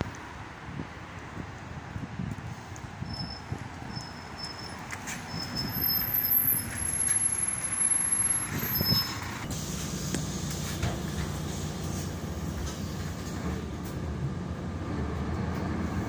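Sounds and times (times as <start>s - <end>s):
bus engine running: 0.0s - 16.0s
engine hum with hiss: 4.9s - 16.0s.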